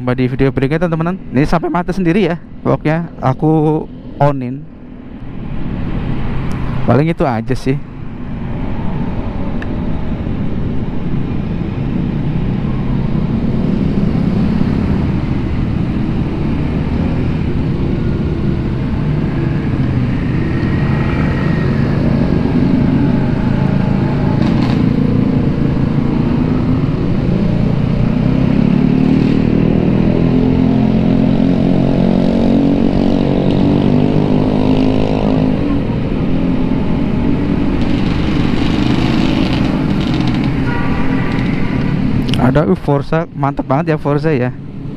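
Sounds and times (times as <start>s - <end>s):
road and traffic noise: 0.0s - 44.9s
scooter engine accelerating: 17.3s - 42.2s.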